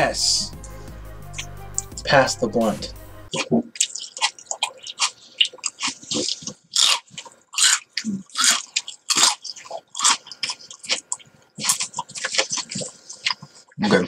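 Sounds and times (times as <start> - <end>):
lip smacks and tongue clicks: 3.4 - 13.8.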